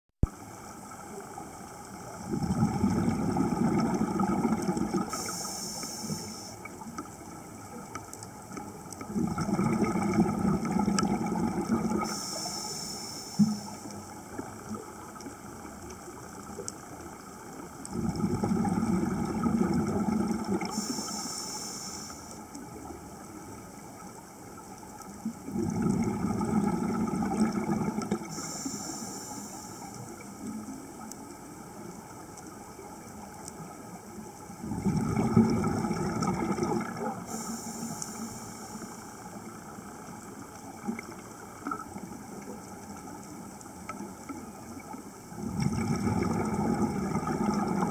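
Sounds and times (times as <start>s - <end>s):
exhaled bubbles gushing: 2.1s - 5.4s, 8.8s - 12.2s, 17.8s - 21.0s, 25.2s - 28.5s, 34.5s - 37.5s, 45.3s - 47.9s
regulator inhalation hiss: 5.0s - 6.7s, 12.0s - 14.0s, 20.7s - 22.4s, 28.2s - 30.2s, 37.1s - 39.4s.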